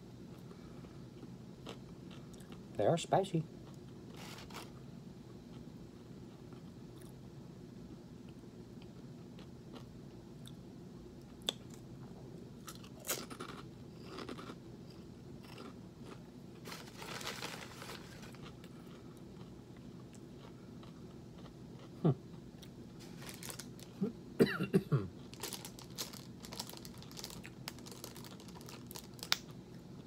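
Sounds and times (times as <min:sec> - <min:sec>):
crunching pork rinds: 0:03.6 - 0:04.7, 0:12.6 - 0:24.1, 0:25.2 - 0:30.0.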